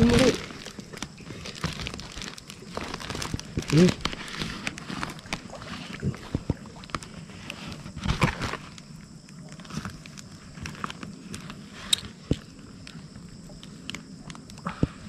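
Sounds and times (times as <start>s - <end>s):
rustling on plastic sack: 0.0s - 8.8s.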